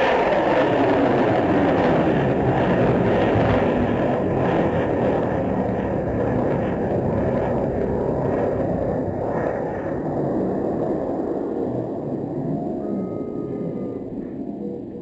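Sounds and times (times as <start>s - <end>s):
rocket motor rumble: 0.0s - 15.0s.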